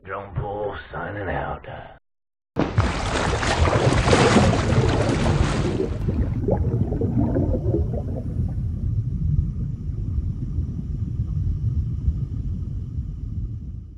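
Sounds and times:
underwater bubbling gurgles: 0:02.8 - 0:13.9
steady deep rumble: 0:03.9 - 0:13.9.

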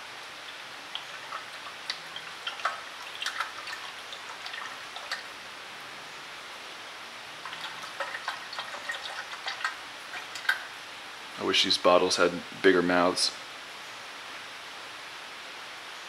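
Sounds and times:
fluid glugging into reservoir: 0:01.0 - 0:05.3, 0:07.4 - 0:10.7
steady hiss: 0:09.7 - 0:16.0.

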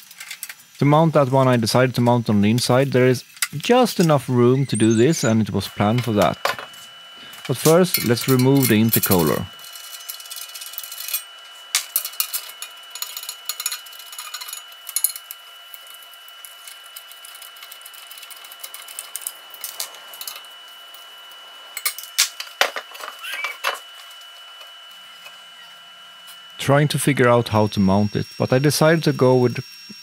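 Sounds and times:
metal parts clinking on workbench: 0:07.6 - 0:16.0.

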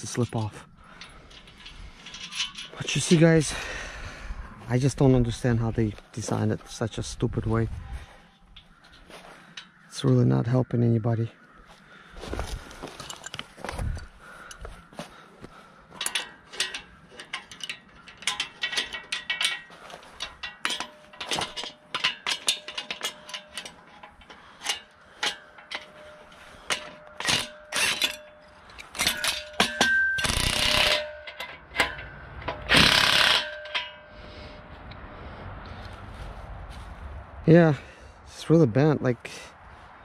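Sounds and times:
metal clicks and knocks: 0:00.0 - 0:03.4, 0:15.9 - 0:34.2
cordless drill driving bolt: 0:32.5 - 0:33.8.

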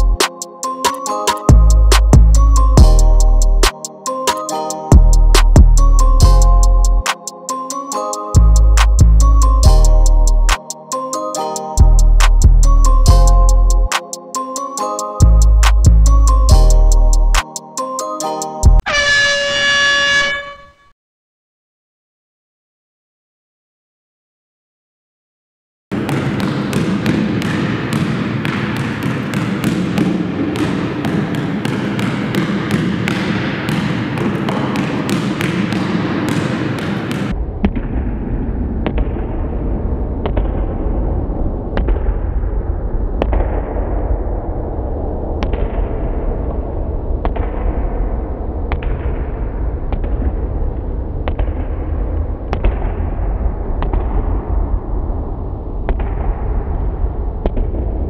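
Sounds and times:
basketball bouncing on gym floor: 0:26.0 - 0:37.3.

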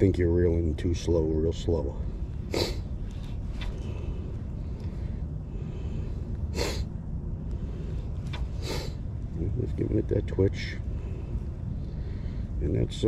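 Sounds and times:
wind: 0:00.0 - 0:13.0
short sharp breaths: 0:07.6 - 0:09.0.

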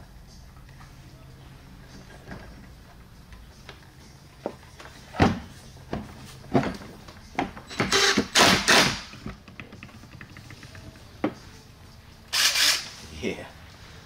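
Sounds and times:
cordless driver running screws: 0:12.4 - 0:12.9.

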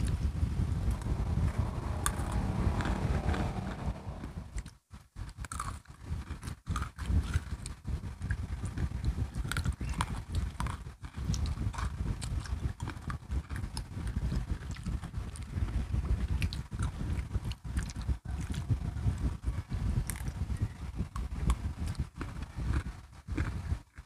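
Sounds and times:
low mouth rumble: 0:00.0 - 0:04.7
crunching crisp biscuit sticks: 0:05.3 - 0:15.5, 0:21.2 - 0:24.0.

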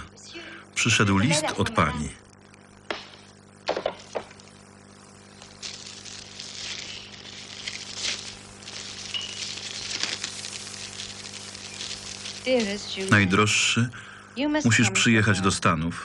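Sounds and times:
steady low hum: 0:00.0 - 0:16.0
paper rustling and crinkling: 0:05.6 - 0:13.2.

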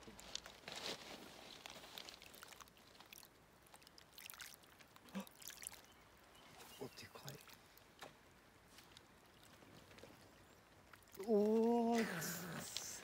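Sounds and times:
water lapping on pebble shore: 0:00.1 - 0:13.0
small short splashes: 0:02.1 - 0:08.2.

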